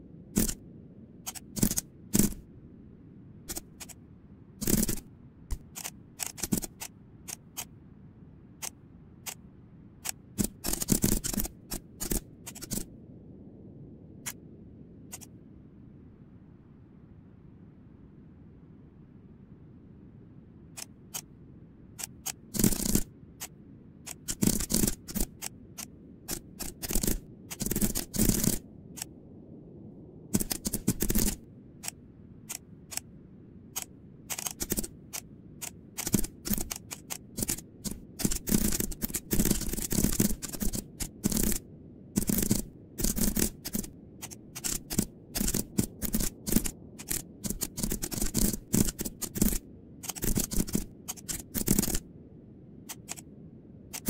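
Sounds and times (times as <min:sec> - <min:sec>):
keyboard typing clicks: 0:00.4 - 0:00.6, 0:01.3 - 0:02.4, 0:03.5 - 0:04.0, 0:04.6 - 0:07.7, 0:10.0 - 0:12.9, 0:22.0 - 0:29.1, 0:30.4 - 0:33.1, 0:33.8 - 0:41.6, 0:42.2 - 0:52.0, 0:52.9 - 0:53.2.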